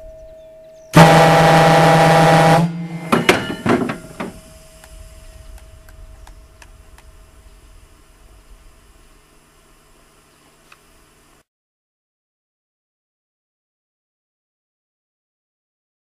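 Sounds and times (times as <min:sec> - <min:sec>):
ship's horn blast: 0:00.9 - 0:08.4
short sputtering horn toots: 0:01.0 - 0:05.6.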